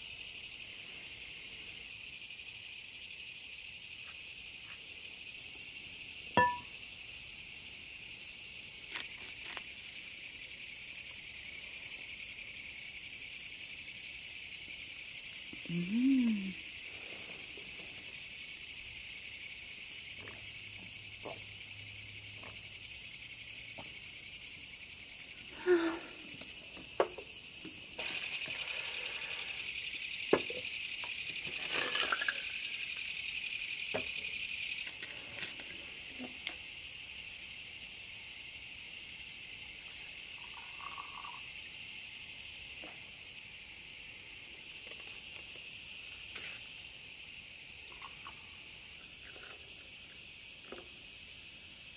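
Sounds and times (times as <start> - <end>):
night insects trilling: 0.0 - 51.9
glass bottles clinking: 6.4 - 6.7.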